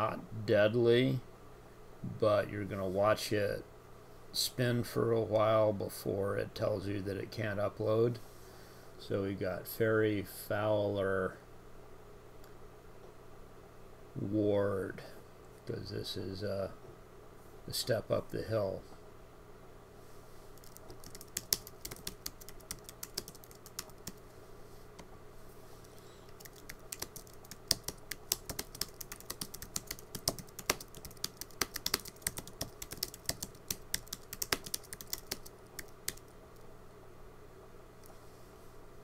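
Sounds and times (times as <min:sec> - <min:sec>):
typing on keyboard: 0:20.6 - 0:24.2, 0:26.3 - 0:36.3.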